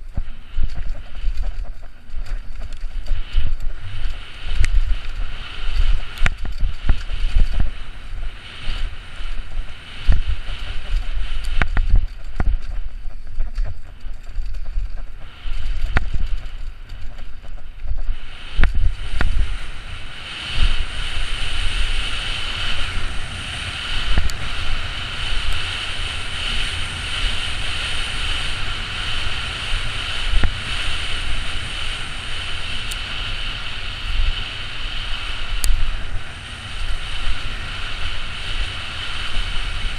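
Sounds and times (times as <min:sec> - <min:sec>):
bike knocking and rattling: 0:00.0 - 0:07.8, 0:09.4 - 0:19.5
wind buffeting microphone: 0:00.0 - 0:39.9.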